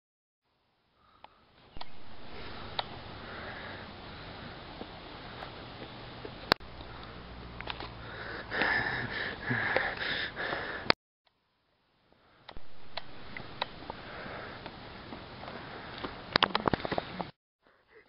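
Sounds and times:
scattered clicks: 0:15.4 - 0:17.1.

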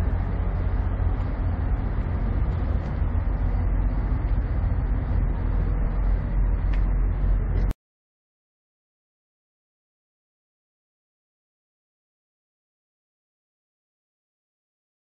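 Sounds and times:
diesel truck engine idling: 0:00.0 - 0:07.7.

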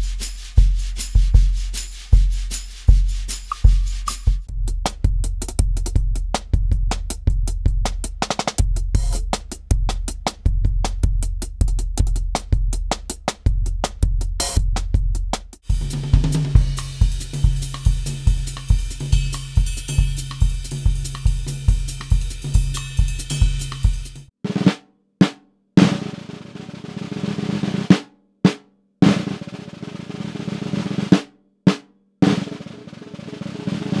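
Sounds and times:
marching snare drum rolls: 0:00.0 - 0:24.8, 0:25.8 - 0:34.0
drum kit playing latin groove: 0:00.0 - 0:26.0.

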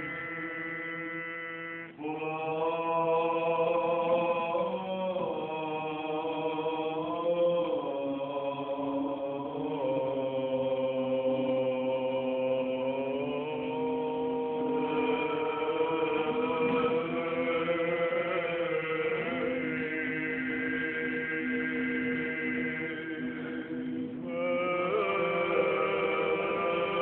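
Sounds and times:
low sustained drone note: 0:00.0 - 0:02.2
person chanting long notes: 0:00.0 - 0:27.0.

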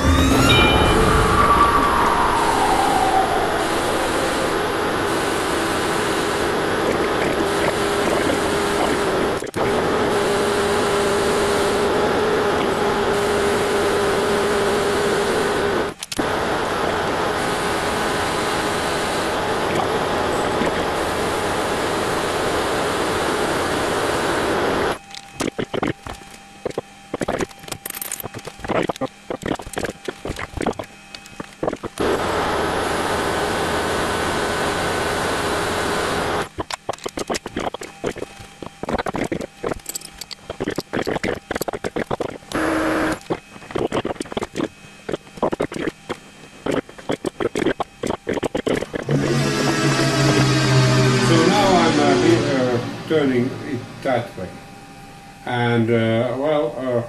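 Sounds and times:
steady low hum: 0:00.0 - 0:57.0
lathe turning rushing hiss: 0:48.8 - 0:54.4.

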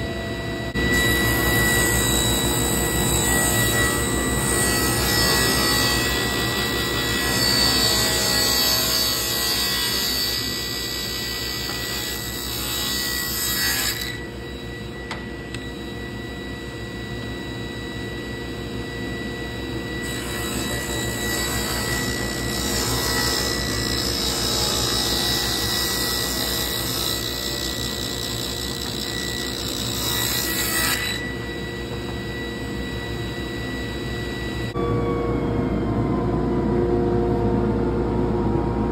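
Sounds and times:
table saw running: 0:00.7 - 0:37.8
saw blade cutting wood: 0:00.8 - 0:14.3, 0:20.0 - 0:32.2.

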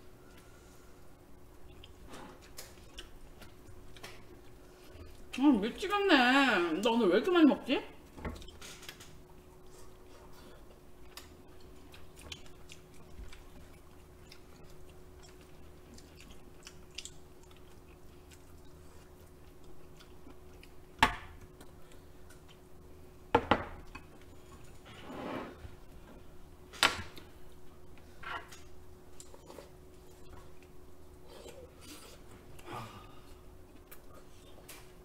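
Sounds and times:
quiet chewing: 0:01.6 - 0:05.4, 0:08.4 - 0:22.8, 0:27.1 - 0:35.0.

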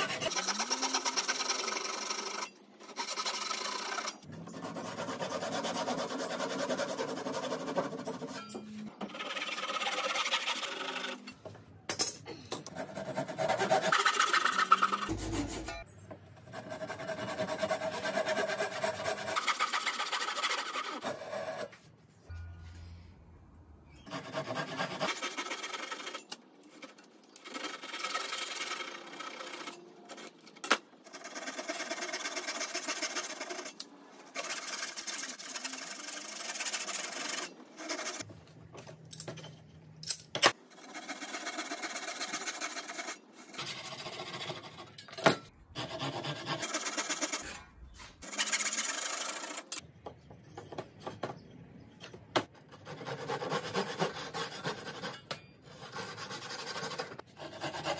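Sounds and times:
handsaw rasping through wood: 0:12.8 - 0:15.8, 0:45.8 - 0:47.4, 0:52.8 - 0:55.2, 0:55.8 - 0:57.9.

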